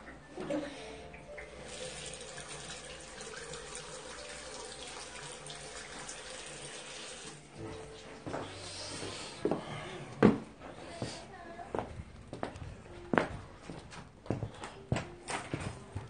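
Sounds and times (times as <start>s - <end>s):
tap water splashing into basin: 1.6s - 7.4s.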